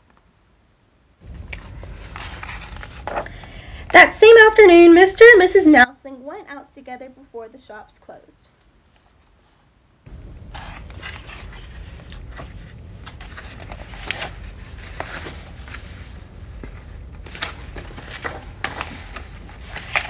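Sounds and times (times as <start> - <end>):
steady low hum: 1.0 - 4.2, 9.8 - 20.0
book pages turning: 1.2 - 3.6, 10.1 - 20.0.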